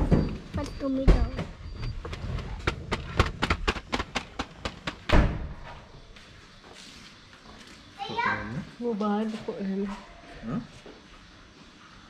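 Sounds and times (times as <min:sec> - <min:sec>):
car door slamming shut: 0:05.1 - 0:05.6.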